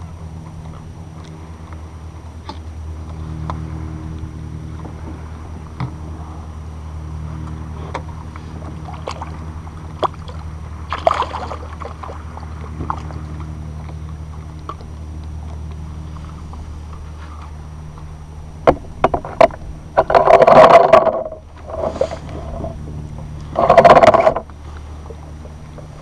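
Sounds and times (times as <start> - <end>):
boat motor drone: 0.0 - 26.0
gear clicking and knocking: 18.7 - 21.9, 23.6 - 24.4.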